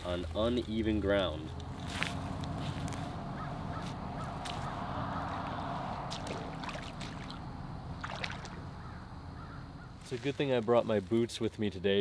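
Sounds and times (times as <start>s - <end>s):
footsteps on gravel: 0.0s - 8.6s, 9.9s - 11.3s
wading in shallow water: 1.7s - 10.4s.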